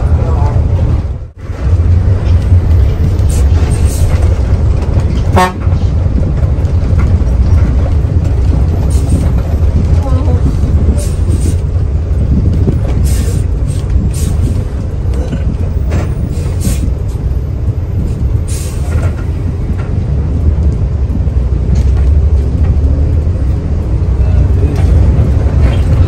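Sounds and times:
bus engine drone: 0.0 - 26.0
rattles and knocks: 1.5 - 18.2.

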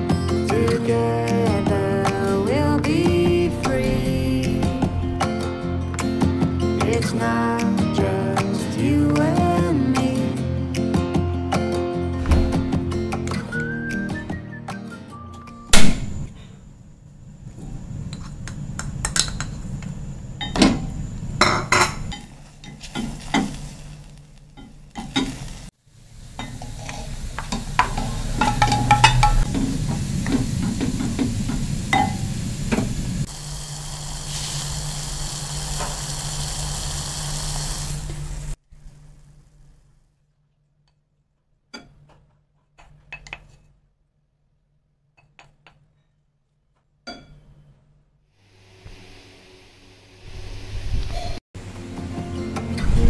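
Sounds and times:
pork sizzling in a pot: 18.2 - 38.6
utensils clinking on ceramic pot: 26.4 - 29.5.

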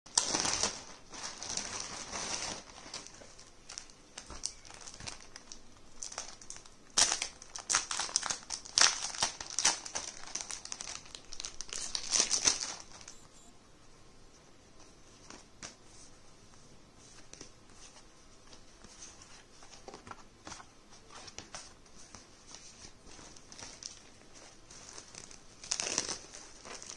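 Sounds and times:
packaging crinkling: 0.1 - 13.2, 22.5 - 26.9.

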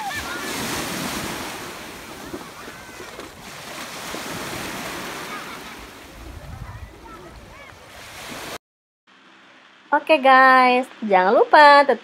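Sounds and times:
sea water washing in shallows: 0.0 - 8.6
faint children's voices: 2.0 - 3.4, 5.1 - 8.0.

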